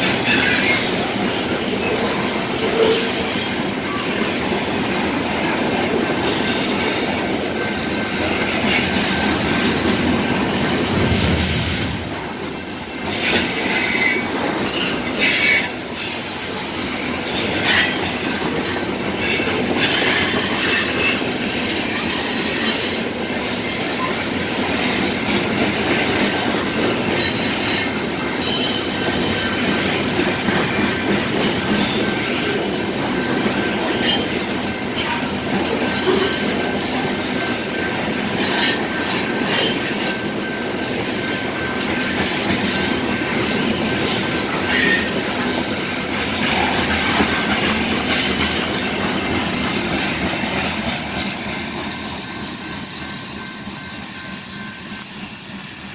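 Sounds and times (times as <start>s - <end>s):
steel wheels rolling on rail: 0.0s - 55.9s
high wheel squeals: 19.2s - 24.2s.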